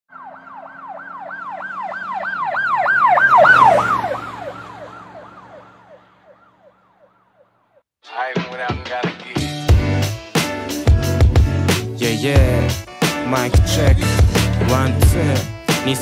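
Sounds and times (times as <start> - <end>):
emergency siren yelping: 0.1 - 7.8
music beat: 8.2 - 16.0.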